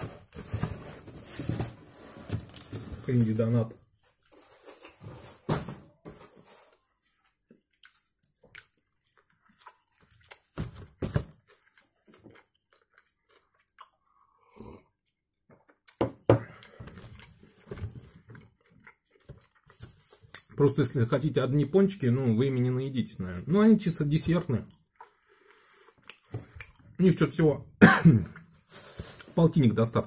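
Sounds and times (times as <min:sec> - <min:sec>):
man chewing: 0:06.4 - 0:20.5, 0:24.7 - 0:27.0.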